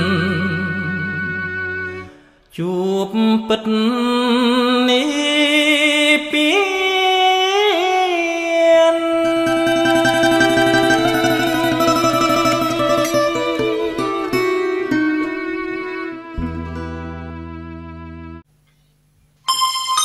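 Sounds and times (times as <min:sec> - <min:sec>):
solo singer with vibrato: 0:00.0 - 0:15.0.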